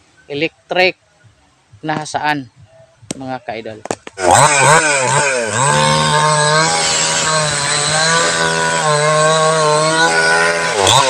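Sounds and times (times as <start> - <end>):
chainsaw cutting log: 4.0 - 11.0.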